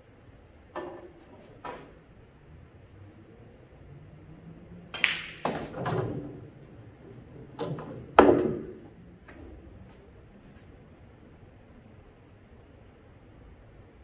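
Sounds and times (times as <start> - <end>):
cue striking ball: 4.9 - 6.5, 7.5 - 8.9
pool balls knocking: 4.9 - 6.6, 7.3 - 9.0.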